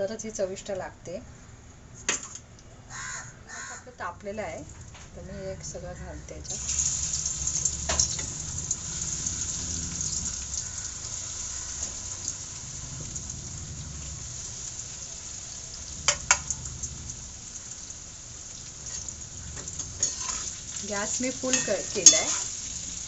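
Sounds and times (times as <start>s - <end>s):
food sizzling in hot oil: 6.5s - 23.0s.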